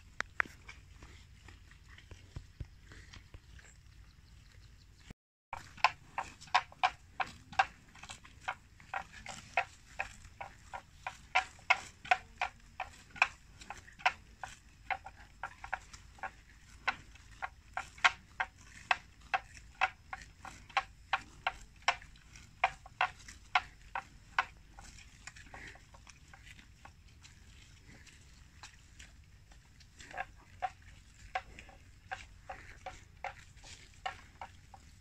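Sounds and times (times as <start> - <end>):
grass tearing as buffalo grazes: 0.0 - 4.7, 5.6 - 35.0.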